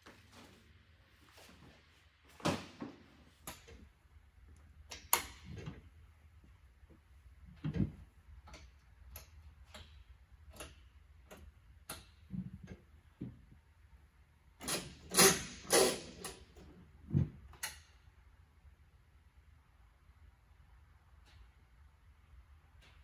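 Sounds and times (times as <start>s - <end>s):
sharp clicks and knocks: 6.9s - 13.6s.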